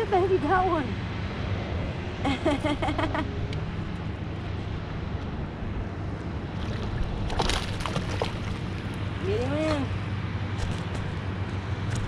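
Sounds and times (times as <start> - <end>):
fish splashing at surface: 6.6 - 8.9.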